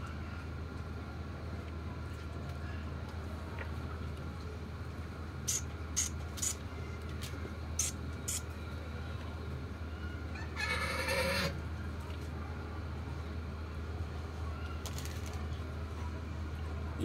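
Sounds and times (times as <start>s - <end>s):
animal call: 10.4s - 11.6s.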